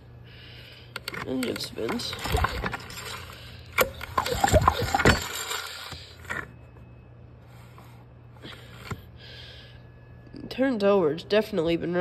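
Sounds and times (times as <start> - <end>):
engine turned over by hand: 1.0 - 6.4.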